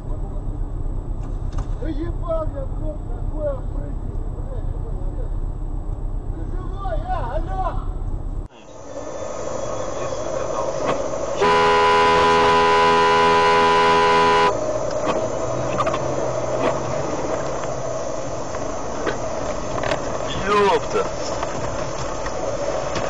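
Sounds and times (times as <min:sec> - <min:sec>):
car engine and road noise: 0:00.0 - 0:23.0
car horn blast: 0:11.4 - 0:14.6.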